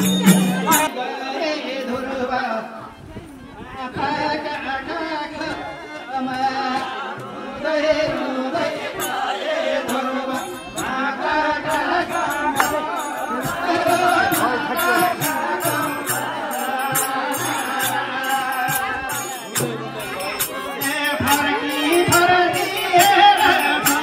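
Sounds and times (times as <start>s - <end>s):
sharp percussion strikes: 0.0s - 0.9s, 11.6s - 24.0s
harmonium: 0.0s - 2.6s, 3.8s - 24.0s
group of voices singing: 0.0s - 24.0s.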